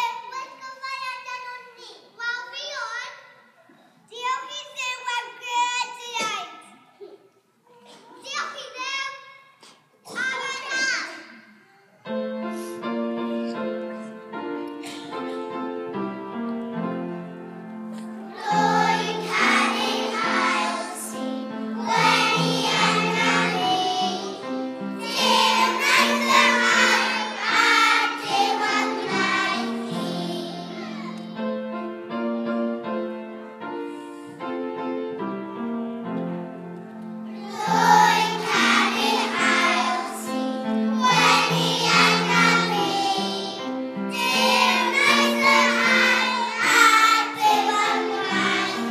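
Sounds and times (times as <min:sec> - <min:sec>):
instrumental accompaniment: 0:12.1 - 0:48.9
children's choir singing: 0:17.9 - 0:31.7, 0:37.3 - 0:48.9.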